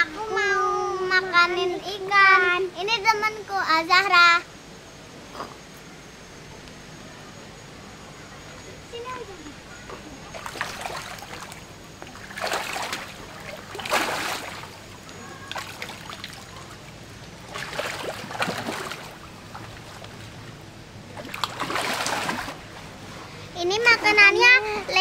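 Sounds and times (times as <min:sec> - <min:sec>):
fish splashing at water surface: 0:10.3 - 0:22.8.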